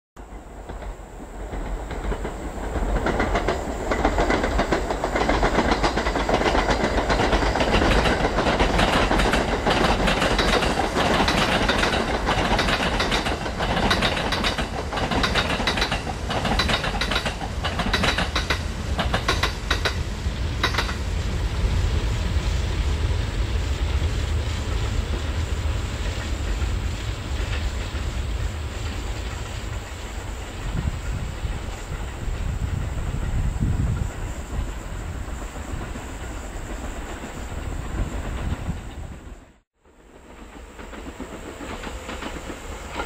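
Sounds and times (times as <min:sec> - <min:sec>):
wheel clatter over rail joints: 0:00.2 - 0:21.1
electric train rumble: 0:00.2 - 0:43.0.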